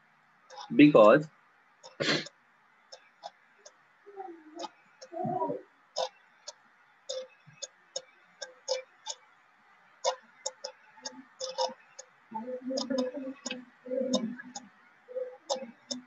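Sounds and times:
stylus clicking on tablet: 10.0s - 12.1s.

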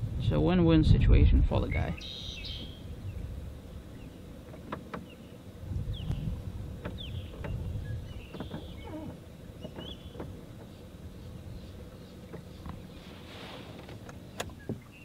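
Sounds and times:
low water rumble: 0.0s - 15.0s
clicks and knocks from boat: 4.4s - 15.0s.

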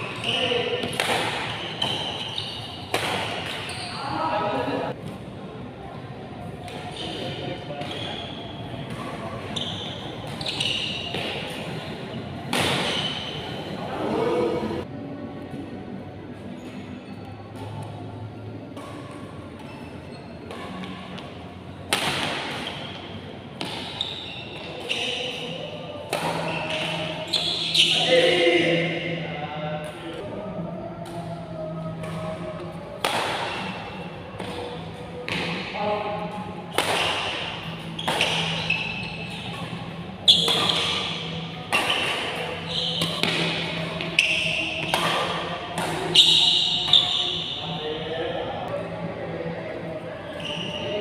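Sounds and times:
shoe squeaks on court floor: 0.0s - 4.4s, 6.8s - 11.9s, 12.7s - 13.7s, 19.6s - 20.9s, 22.4s - 28.6s, 37.5s - 45.3s, 46.0s - 48.1s, 50.3s - 51.0s
racket hitting shuttlecock: 0.1s - 3.7s, 8.8s - 9.6s, 12.4s - 13.4s, 20.5s - 23.0s, 23.6s - 28.0s, 33.0s - 35.6s, 36.2s - 47.5s.

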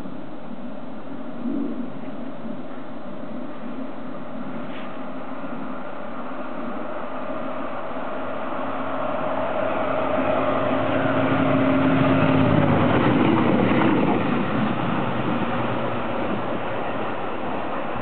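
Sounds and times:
train wheel noise: 2.4s - 18.0s
diesel railcar passing: 2.6s - 18.0s
steady hum dropping in pitch: 3.9s - 18.0s.

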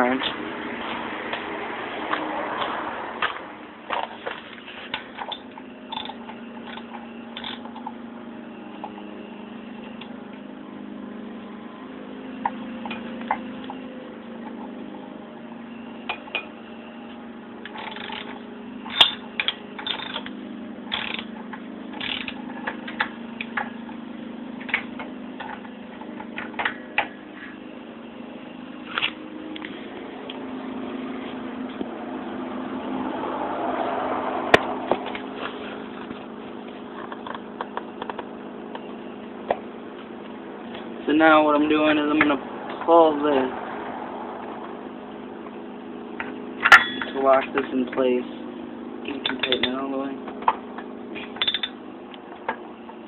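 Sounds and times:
tools and metal parts clanking: 3.2s - 8.0s, 17.6s - 23.7s, 46.2s - 48.1s, 49.1s - 50.6s, 51.2s - 51.8s.

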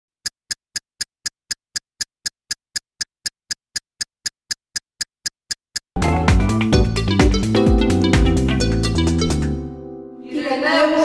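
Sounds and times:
countdown ticking: 0.2s - 9.7s
loud music: 6.0s - 10.0s.

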